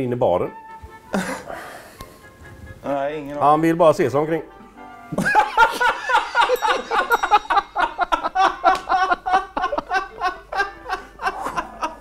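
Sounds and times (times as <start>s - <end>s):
men laughing hard: 1.1s - 1.8s, 5.1s - 12.0s.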